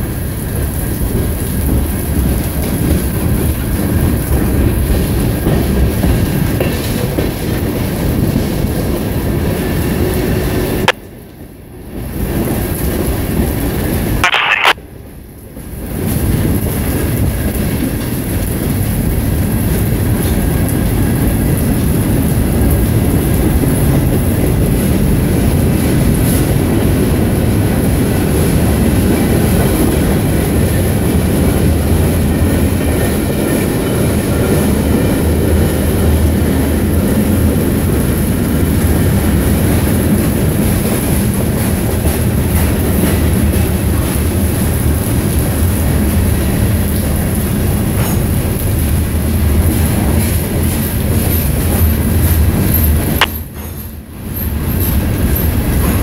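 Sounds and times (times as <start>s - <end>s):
clickety-clack over rail joints: 0.0s - 11.0s, 15.6s - 56.0s
train wheels rumbling on rails: 0.0s - 14.2s, 15.0s - 56.0s.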